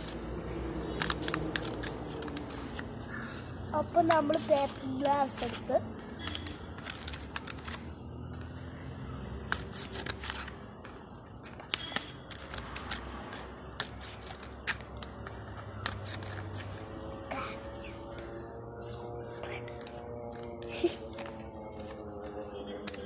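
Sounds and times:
paper cup crackling: 0:00.8 - 0:07.9, 0:19.8 - 0:23.0
scissors snipping paper cup: 0:03.8 - 0:07.8.

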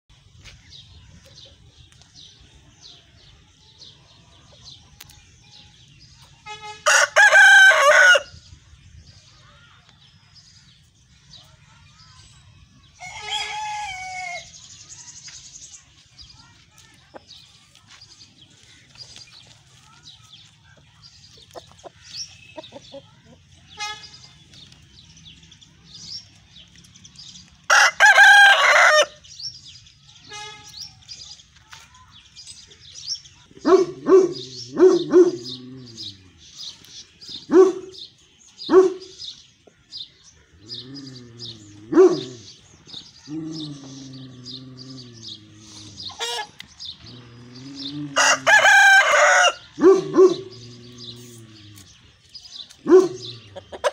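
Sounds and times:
small birds chirping: 0:00.1 - 0:06.9, 0:07.8 - 0:53.9
rooster crowing: 0:06.8 - 0:08.3, 0:13.0 - 0:14.5, 0:27.7 - 0:29.2, 0:48.1 - 0:49.6
rooster clucks and wavering calls: 0:43.3 - 0:51.8, 0:52.9 - 0:53.9.

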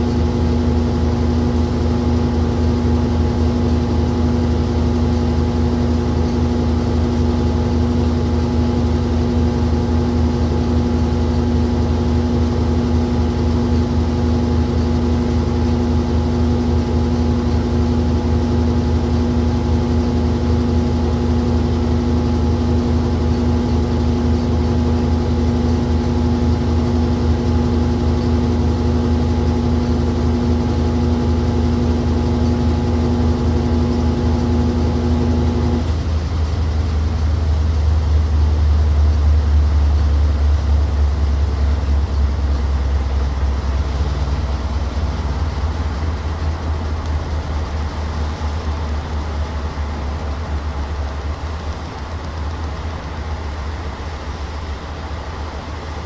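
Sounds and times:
washing machine motor hum: 0:00.0 - 0:56.0
whirring noise: 0:42.5 - 0:56.0.

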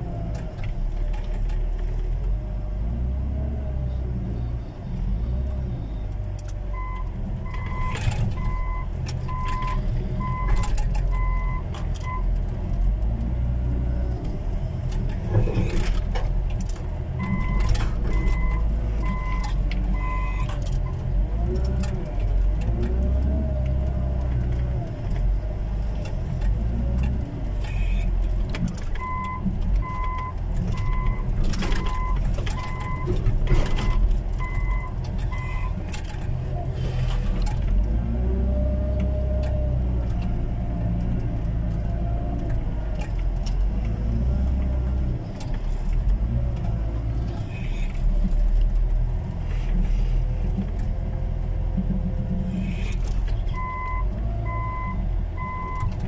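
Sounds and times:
reversing alarm beeping: 0:17.2 - 0:20.5, 0:29.0 - 0:33.1, 0:33.7 - 0:35.8, 0:53.6 - 0:55.9.

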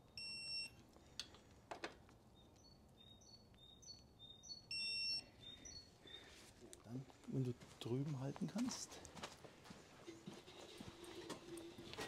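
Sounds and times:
birds chirping: 0:02.2 - 0:08.2.

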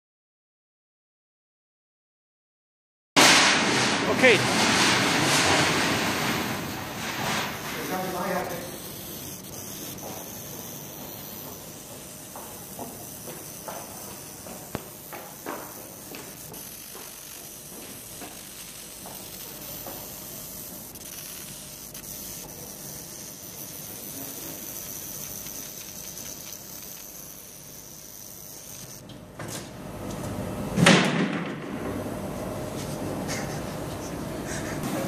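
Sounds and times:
short rushing noise: 0:03.2 - 0:07.6
laser machine hiss and whine: 0:04.0 - 0:29.1.

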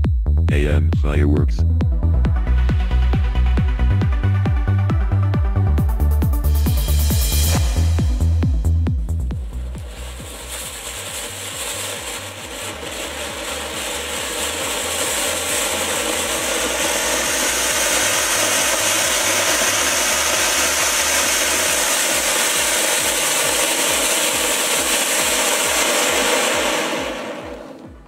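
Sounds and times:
firework fountain hissing: 0:06.4 - 0:28.0.

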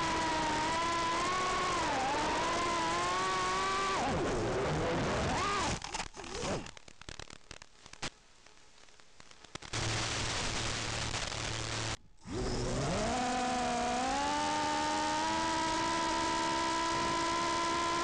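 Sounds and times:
drone motor whine: 0:00.0 - 0:06.7, 0:09.8 - 0:18.0
crackling static with clicks: 0:00.0 - 0:13.0
static hiss: 0:00.0 - 0:18.0
low hum: 0:09.8 - 0:18.0.

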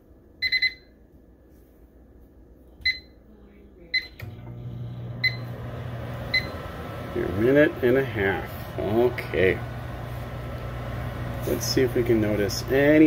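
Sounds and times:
microwave keypad beeping: 0:00.4 - 0:00.9, 0:05.1 - 0:05.6, 0:06.2 - 0:06.8
microwave oven humming: 0:03.9 - 0:13.0.

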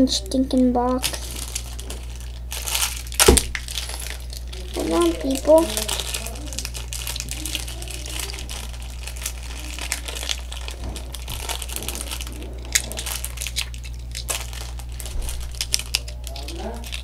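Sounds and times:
steady low hum: 0:00.0 - 0:17.0
toy packaging crinkling: 0:00.8 - 0:17.0.

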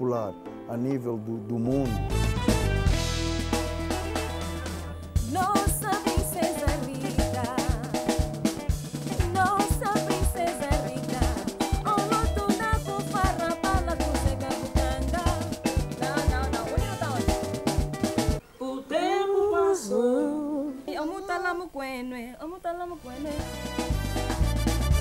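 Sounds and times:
band with drums and bass: 0:01.9 - 0:18.4, 0:23.4 - 0:25.0
woman singing with vibrato: 0:05.2 - 0:08.1, 0:09.2 - 0:17.4, 0:18.5 - 0:23.5.

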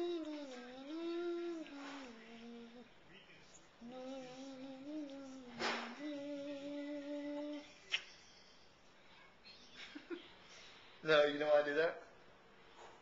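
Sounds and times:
person humming a slow tune: 0:00.0 - 0:02.9, 0:03.8 - 0:07.8.

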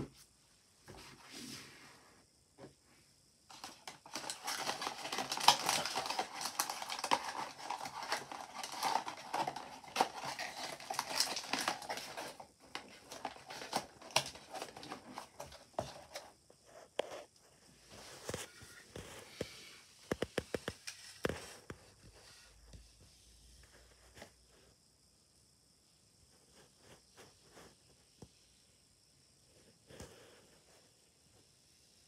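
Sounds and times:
cardboard packaging rustling: 0:03.5 - 0:22.1.

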